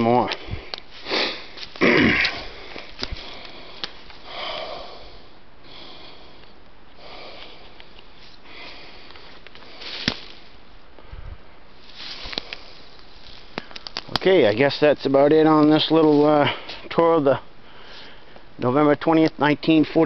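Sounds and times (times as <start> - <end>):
person breathing heavily: 0.3 - 13.0, 17.6 - 18.6.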